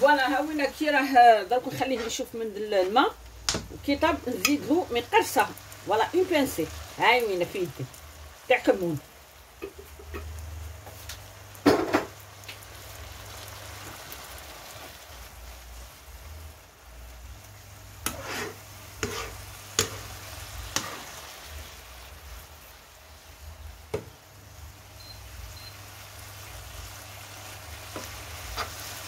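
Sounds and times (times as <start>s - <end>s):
vegetables sizzling in a frying pan: 0.0s - 29.0s
metal spoon scraping and knocking pan: 18.0s - 20.1s, 20.7s - 21.1s.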